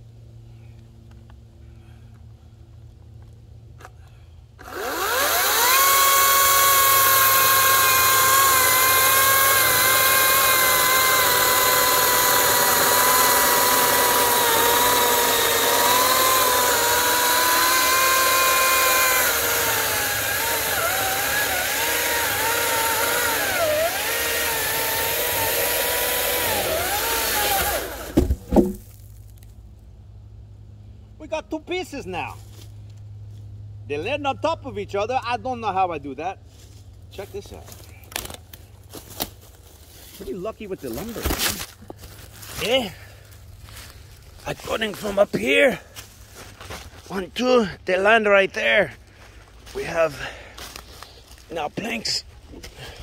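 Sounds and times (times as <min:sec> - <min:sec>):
chainsaw cutting log: 0:04.6 - 0:28.9, 0:38.0 - 0:39.4, 0:40.9 - 0:43.0
wood plank dropping knocks: 0:28.1 - 0:29.0.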